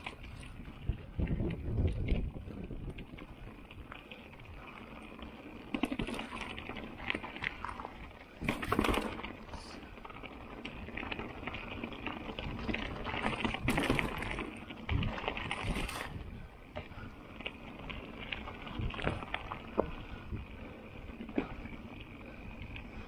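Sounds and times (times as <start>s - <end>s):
bike clatter: 0.0s - 3.1s, 5.6s - 23.0s
bike clicks and rattles: 0.0s - 23.0s
tyres crunching over loose stones: 4.6s - 22.9s.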